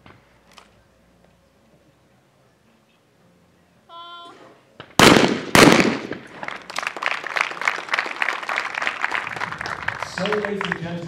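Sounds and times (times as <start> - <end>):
person calling: 3.9 - 4.6
shotgun shots: 4.8 - 6.4
spectators applauding: 6.4 - 11.0.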